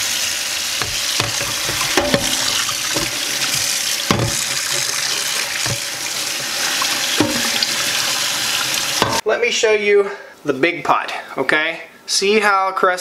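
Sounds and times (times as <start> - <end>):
scrubbing pot: 0.5 - 9.2
sharp knocks: 0.8 - 3.2, 4.1 - 4.6, 7.2 - 7.6
tap running into metal sink: 0.8 - 9.2.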